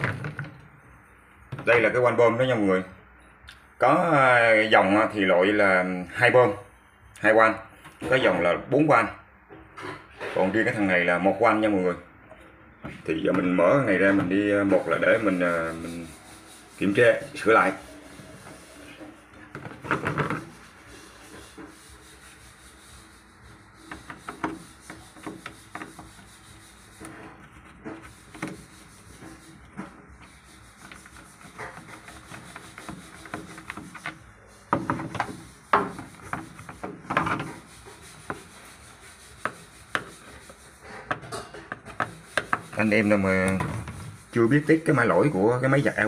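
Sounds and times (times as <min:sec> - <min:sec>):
screwdriver scraping on plastic: 0:23.0 - 0:44.9.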